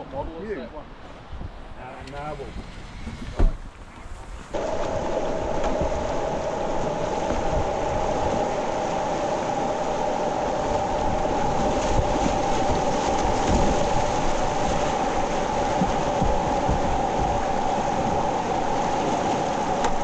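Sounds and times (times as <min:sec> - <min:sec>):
rapids rushing: 0:04.5 - 0:20.0.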